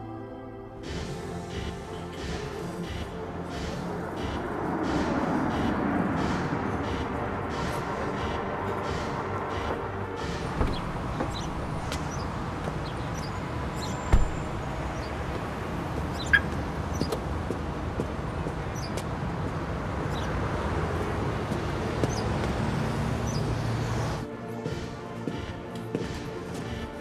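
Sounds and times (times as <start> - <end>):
traffic rumble: 0.6 - 27.0
birds chirping: 5.1 - 24.2
dull thump: 9.6 - 12.1, 14.1 - 14.6.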